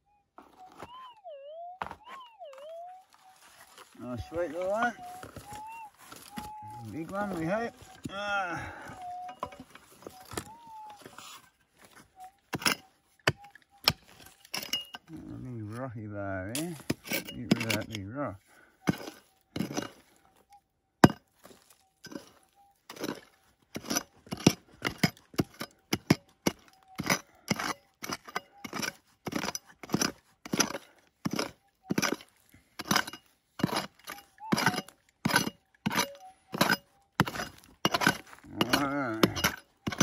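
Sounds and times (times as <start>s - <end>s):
pick clinking on stones: 9.0s - 10.8s, 11.8s - 15.4s, 16.5s - 18.1s, 18.8s - 40.0s.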